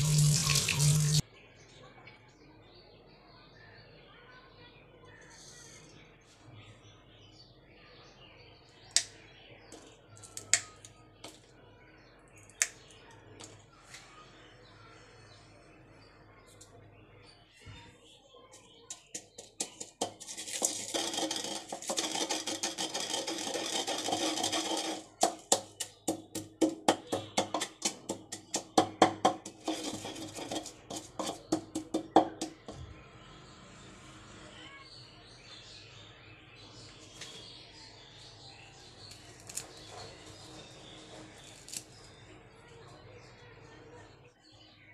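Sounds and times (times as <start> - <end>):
chillies snapping: 10.3 - 10.9, 12.5 - 13.5, 39.1 - 39.8, 41.5 - 42.0
pestle pounding in wooden mortar: 18.9 - 32.8
grinding scrape: 19.3 - 32.5.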